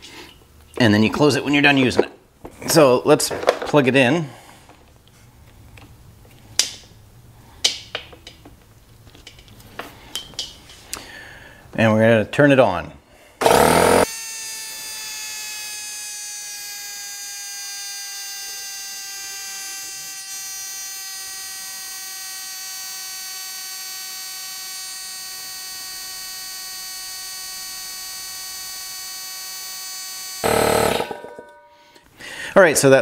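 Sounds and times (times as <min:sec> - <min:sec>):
air compressor humming whine: 0:13.4 - 0:32.0.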